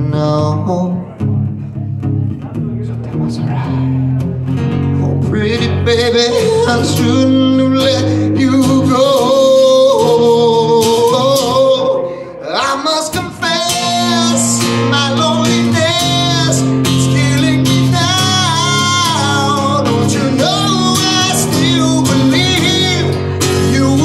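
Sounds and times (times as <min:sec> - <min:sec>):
man singing into a microphone: 0:00.0 - 0:01.3, 0:05.0 - 0:24.0
acoustic guitar strumming: 0:00.0 - 0:24.0.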